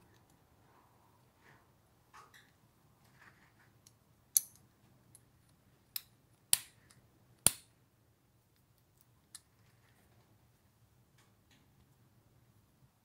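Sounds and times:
padlock shackle clicking: 0:03.9 - 0:07.7.

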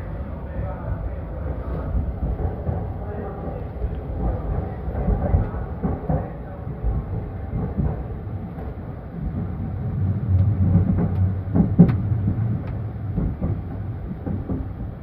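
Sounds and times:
train rumble inside carriage: 0:00.0 - 0:15.0.

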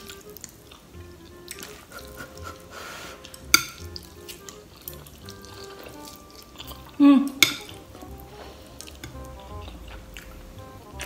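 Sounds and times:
faint background music: 0:00.0 - 0:11.0
noodles slurped: 0:00.0 - 0:11.0.

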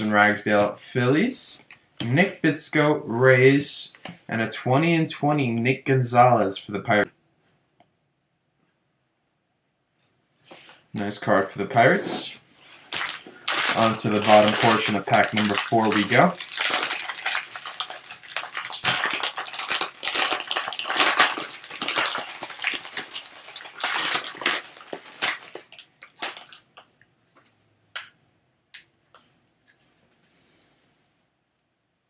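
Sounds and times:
foil wrapper crinkling and tearing: 0:12.9 - 0:26.9.

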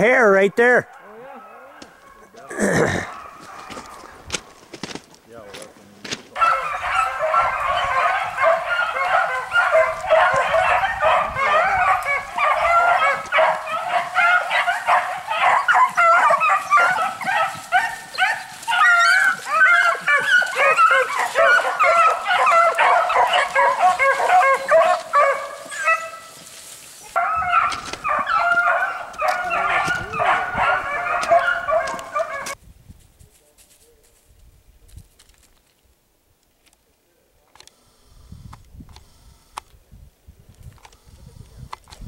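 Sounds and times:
hounds baying and yelping: 0:00.6 - 0:04.7, 0:06.3 - 0:32.6.

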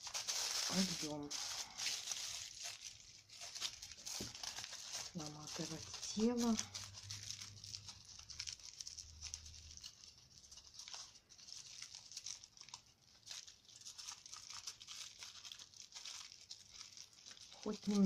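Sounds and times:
aluminium foil crinkling: 0:00.0 - 0:18.0.

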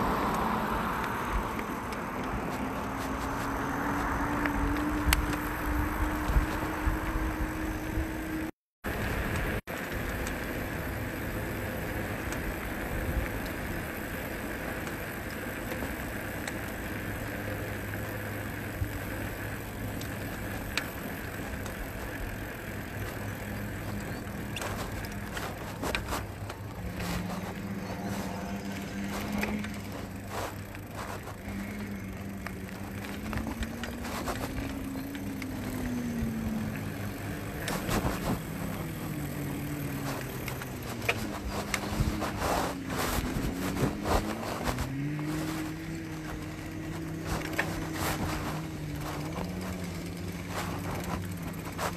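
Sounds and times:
wind rush on microphone: 0:00.0 - 0:08.5, 0:37.6 - 0:49.6
tyre noise on pavement: 0:00.0 - 0:51.9.

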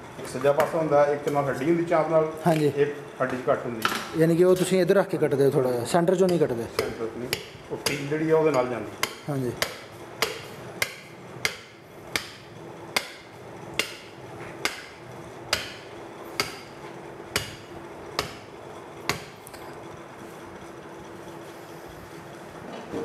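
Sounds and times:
cleaver chopping through bone: 0:06.3 - 0:12.4, 0:13.0 - 0:16.7, 0:17.4 - 0:18.5, 0:19.1 - 0:19.4.

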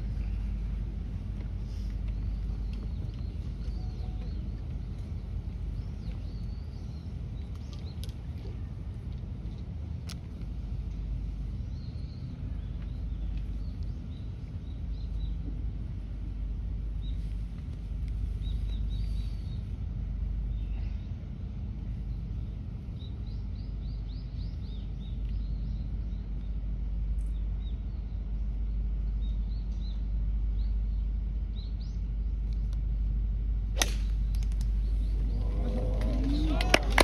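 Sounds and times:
low outdoor rumble: 0:00.0 - 0:37.0
small birds chirping: 0:01.6 - 0:08.2, 0:22.0 - 0:32.7
golf club striking ball: 0:33.8 - 0:34.6.

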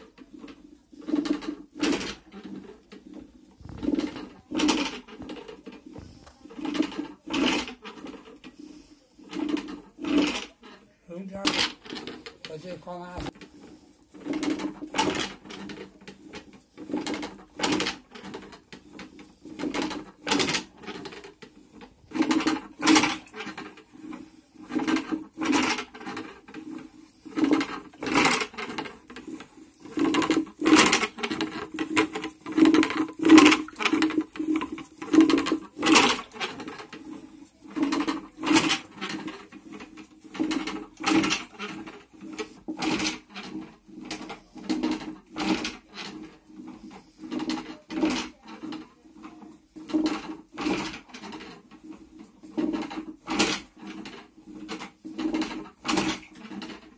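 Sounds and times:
wooden churn beating curd: 0:00.0 - 0:56.9.

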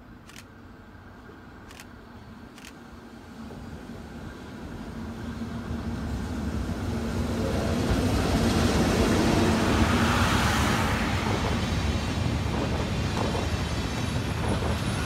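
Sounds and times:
train wheels rumbling on rails: 0:03.4 - 0:15.0.

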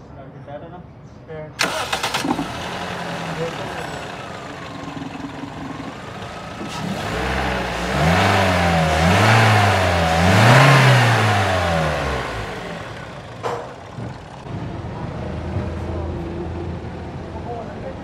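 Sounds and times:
car engine revving and idling: 0:01.6 - 0:17.3.

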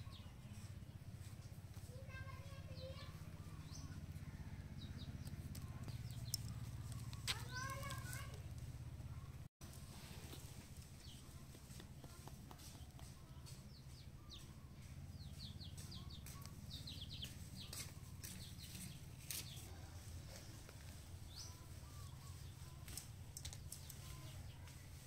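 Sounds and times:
small birds chirping: 0:00.0 - 0:25.0.

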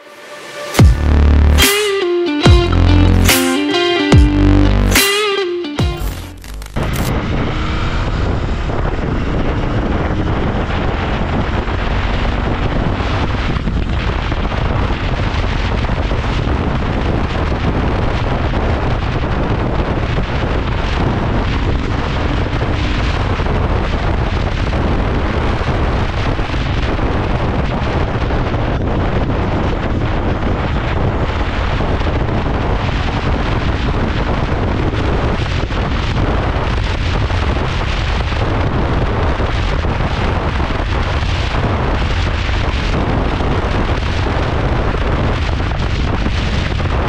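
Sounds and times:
motorcycle engine running: 0:00.8 - 0:01.7, 0:05.8 - 0:46.8
wind rushing over microphone: 0:06.8 - 0:47.0.

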